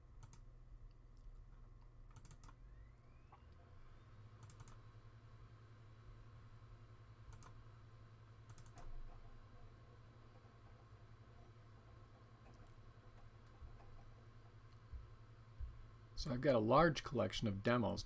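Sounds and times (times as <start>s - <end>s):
faint low hum: 0.0s - 18.0s
computer mouse clicks: 0.2s - 3.6s, 4.4s - 4.8s, 7.3s - 7.6s, 8.4s - 9.3s.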